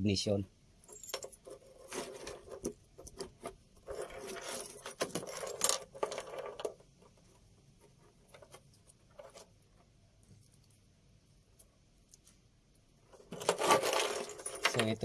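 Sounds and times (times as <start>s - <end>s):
wires clicking and clinking: 0.8s - 10.9s, 13.0s - 15.0s.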